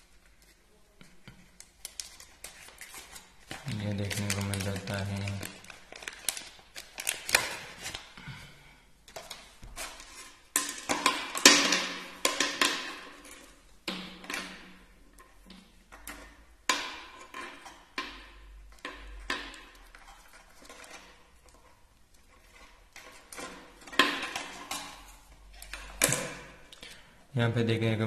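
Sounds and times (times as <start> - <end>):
plastic bag crinkling: 1.5 - 8.2.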